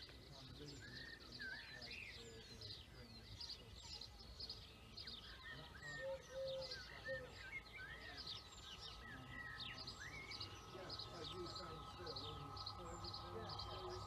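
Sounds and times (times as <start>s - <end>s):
birds chirping and whistling: 0.0s - 14.0s
low steady rumble: 6.8s - 14.0s.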